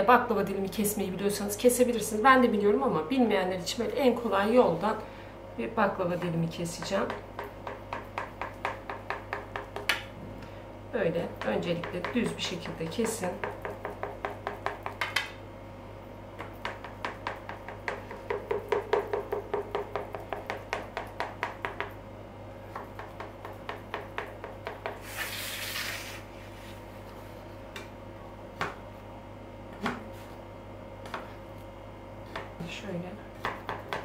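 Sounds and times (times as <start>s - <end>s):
knife tapping baking tray: 6.2s - 10.1s, 11.4s - 15.3s.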